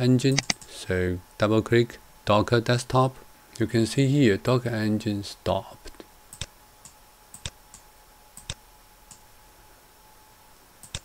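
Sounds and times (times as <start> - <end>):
computer mouse clicking: 0.3 - 0.7, 6.3 - 7.8, 8.4 - 9.2, 10.8 - 11.0.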